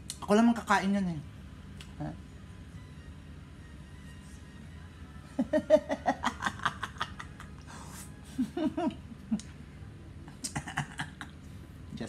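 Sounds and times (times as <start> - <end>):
man laughing: 5.4 - 9.4, 10.3 - 11.3.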